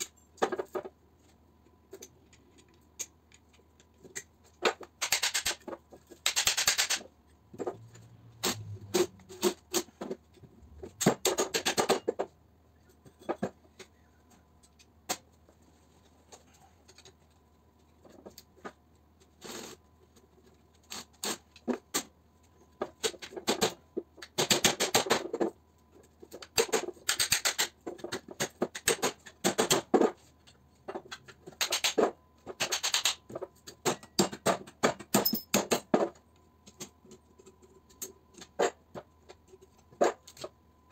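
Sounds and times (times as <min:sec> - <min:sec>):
tools clinking on metal bench: 0:35.1 - 0:35.7.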